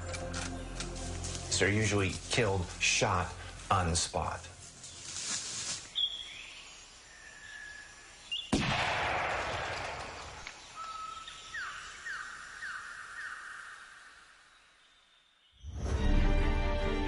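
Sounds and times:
bird calls: 5.8 - 8.6, 10.0 - 15.7
echoing gunshot: 8.5 - 10.5.

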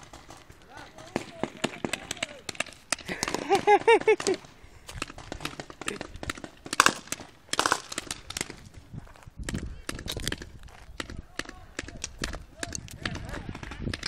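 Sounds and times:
footsteps on dry ground: 7.4 - 13.5.

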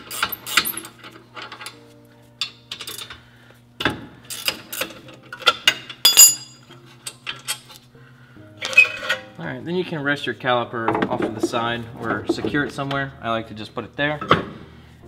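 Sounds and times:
metal clinks of wrench and caliper: 6.0 - 6.6.

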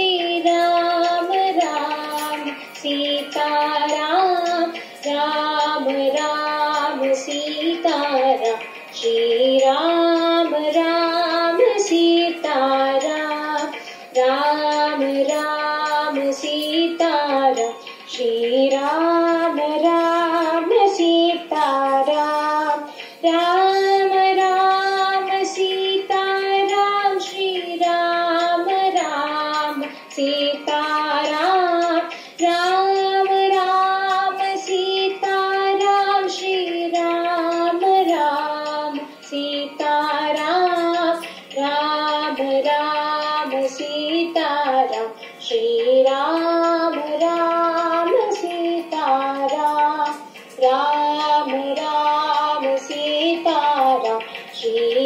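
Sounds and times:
women singing devotional song: 0.0 - 55.0.

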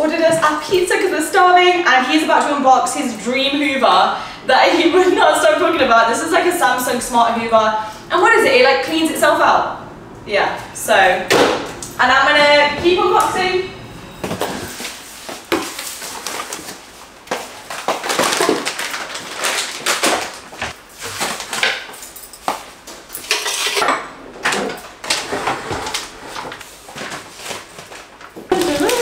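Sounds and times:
packaging rustling: 14.6 - 22.2, 25.1 - 29.0
kitchenware clinks and knocks: 21.1 - 26.5.

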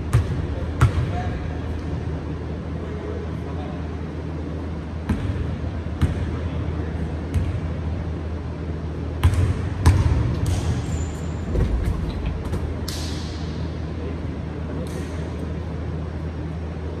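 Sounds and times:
steady low hum: 0.0 - 17.0
sneaker squeaks: 10.5 - 12.3.

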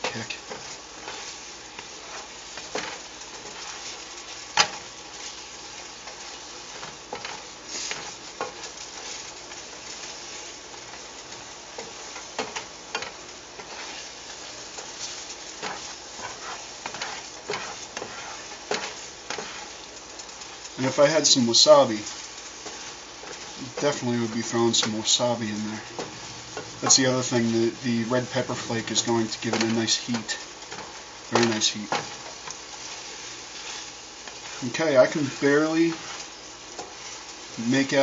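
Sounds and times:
utensil scraping pan: 0.0 - 5.5, 6.1 - 10.4, 11.8 - 27.5, 28.2 - 38.0
food sizzling in pan: 0.0 - 38.0.

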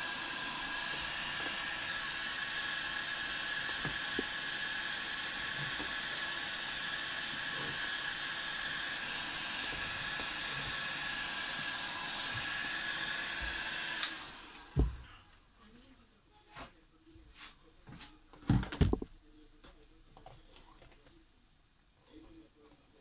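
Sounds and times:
heat gun blowing air: 0.0 - 14.8.

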